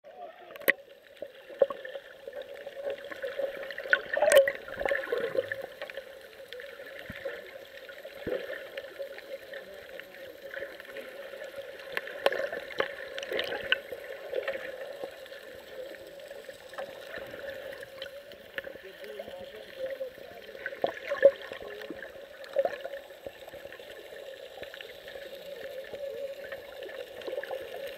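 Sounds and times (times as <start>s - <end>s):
underwater gurgling water: 0.0s - 27.9s
sharp underwater clicks and knocks: 0.5s - 0.8s.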